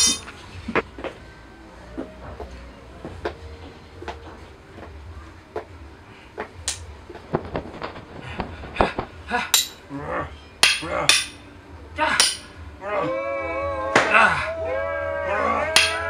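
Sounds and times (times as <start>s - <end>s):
props knocking and clanking: 7.1s - 9.8s.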